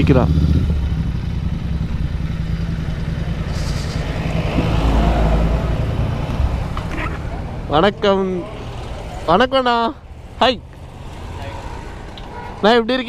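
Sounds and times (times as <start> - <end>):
motorcycle engine rumble: 0.0 - 13.0.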